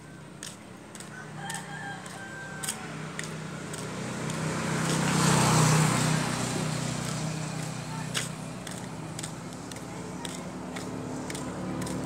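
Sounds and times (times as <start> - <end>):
vehicle engine approaching: 0.0 - 12.0
footsteps on gravel: 0.3 - 5.6, 6.9 - 12.0
rooster crowing: 1.0 - 3.0.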